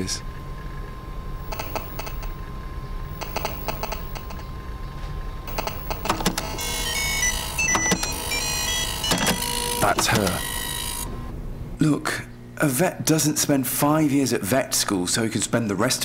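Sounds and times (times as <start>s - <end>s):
high electronic tones: 1.4s - 2.4s, 3.1s - 4.5s, 5.5s - 11.3s
phone rapid clicks: 1.4s - 2.4s, 3.1s - 4.5s, 5.5s - 10.4s.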